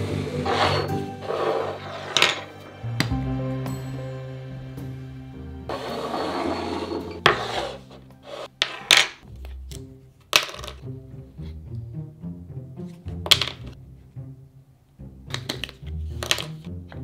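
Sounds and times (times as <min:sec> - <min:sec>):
background music: 0:00.0 - 0:17.0
scraping rub: 0:00.4 - 0:02.5, 0:05.7 - 0:09.0.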